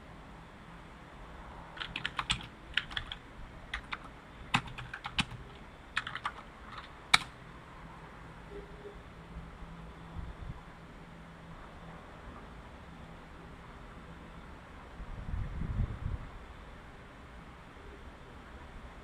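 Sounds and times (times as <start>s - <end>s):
computer keyboard typing: 1.8s - 7.4s.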